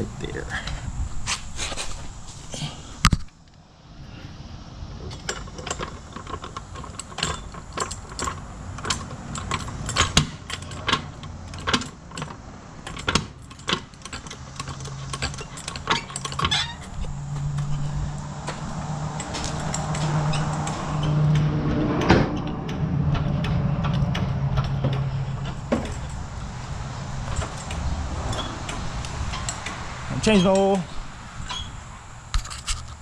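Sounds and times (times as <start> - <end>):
floor jack clicking and clanking: 5.0 - 26.2.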